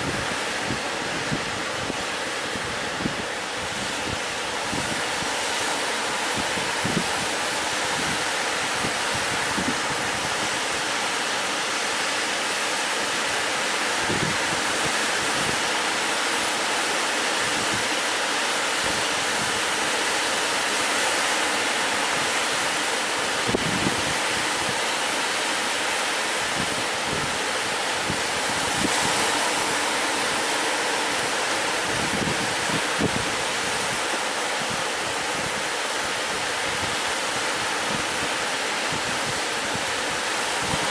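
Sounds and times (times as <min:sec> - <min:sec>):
wind buffeting microphone: 0:00.0 - 0:12.2, 0:13.2 - 0:20.7, 0:21.5 - 0:25.3, 0:26.3 - 0:40.9
sea surf rushing: 0:00.0 - 0:40.9.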